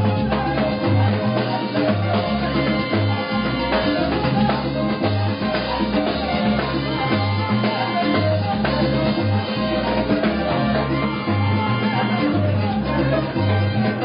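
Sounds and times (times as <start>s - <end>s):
drums and percussion: 0.0s - 14.0s
repeating bass line: 0.0s - 14.0s.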